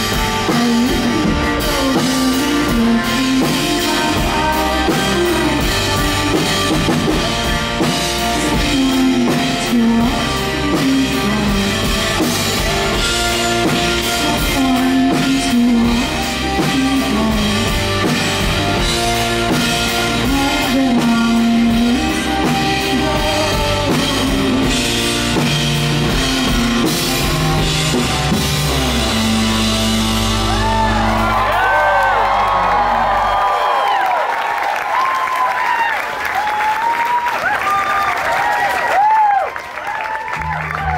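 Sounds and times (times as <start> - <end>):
woman singing: 0.0 - 26.8
rock band playing: 0.0 - 40.9
audience whooping: 30.2 - 40.9.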